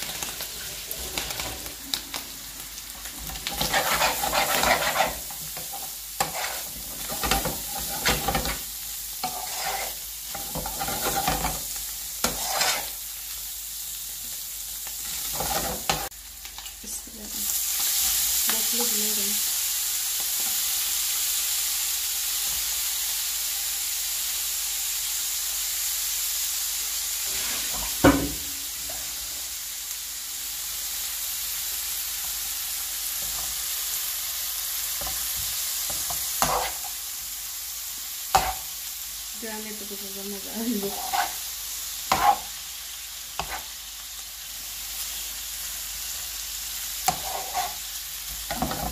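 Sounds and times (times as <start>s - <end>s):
light sizzle in frying pan: 0.0s - 48.9s
vegetables sizzling in hot oil: 0.0s - 48.9s
metal spoon scraping a pan: 3.3s - 8.6s, 9.2s - 11.6s, 12.2s - 13.0s, 15.1s - 16.1s, 27.2s - 28.0s, 35.9s - 37.0s, 38.3s - 38.7s, 40.8s - 41.5s, 42.1s - 42.5s, 43.4s - 43.7s, 47.1s - 47.8s.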